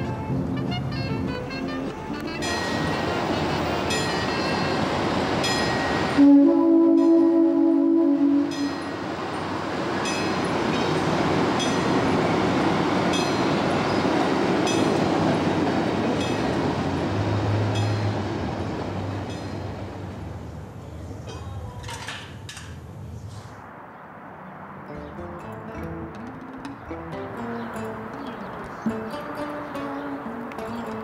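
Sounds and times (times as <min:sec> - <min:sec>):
locomotive horn: 0:00.0 - 0:04.9, 0:06.1 - 0:08.8
train rumbling past: 0:00.0 - 0:21.8
wheels clicking over rail joints: 0:21.2 - 0:22.9, 0:25.0 - 0:31.0.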